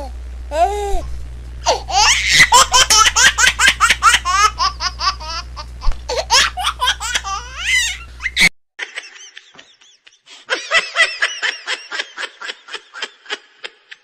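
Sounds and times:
steady low hum: 0:00.0 - 0:08.5
baby giggling: 0:01.6 - 0:08.5.

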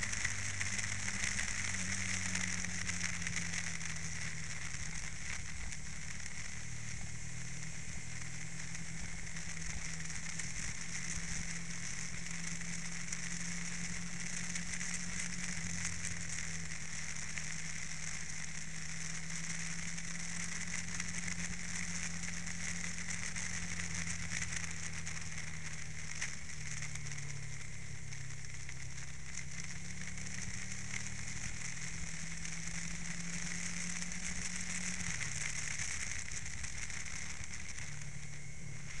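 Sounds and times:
motorcycle engine hum: 0:00.0 - 0:39.0
wind hiss: 0:00.0 - 0:39.0.

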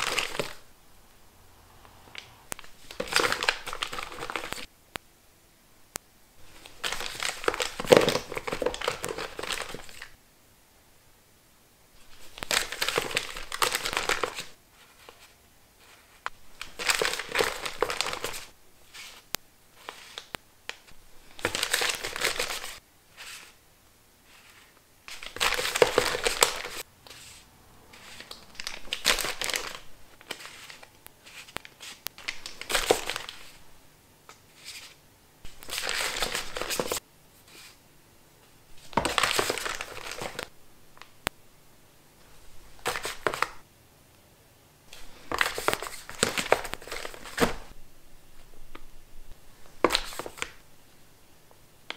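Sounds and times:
plastic sachets crinkling: 0:00.0 - 0:00.7, 0:02.2 - 0:04.7, 0:06.4 - 0:10.2, 0:12.0 - 0:15.4, 0:16.2 - 0:22.8, 0:24.4 - 0:26.9, 0:28.0 - 0:33.6, 0:34.6 - 0:37.0, 0:38.8 - 0:40.5, 0:42.3 - 0:43.6, 0:45.0 - 0:47.8, 0:49.7 - 0:50.6.

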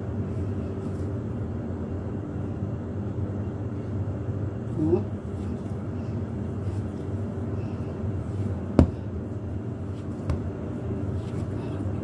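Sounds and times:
steady low hum: 0:00.0 - 0:12.0
dough kneaded by hand: 0:04.6 - 0:12.0.

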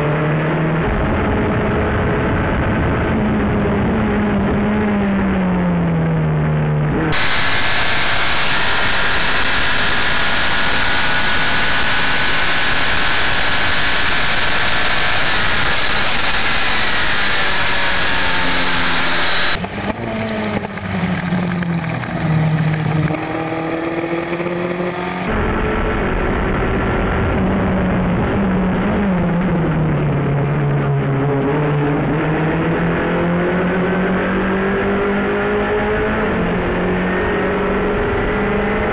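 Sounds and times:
race car engine: 0:00.0 - 0:38.9.

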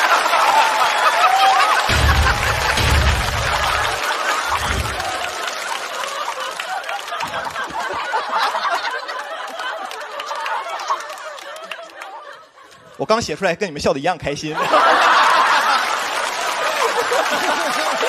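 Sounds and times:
audience clapping: 0:00.0 - 0:12.8, 0:14.6 - 0:18.0
studio audience laughing: 0:00.0 - 0:13.0, 0:14.5 - 0:18.0
deep bass thuds: 0:01.9 - 0:05.1.

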